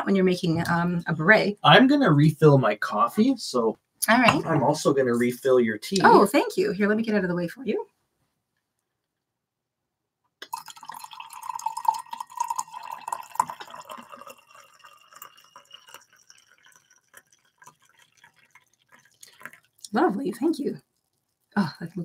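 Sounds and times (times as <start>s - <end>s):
liquid dripping: 10.4s - 22.0s
tea pouring into ceramic mug: 10.4s - 22.0s.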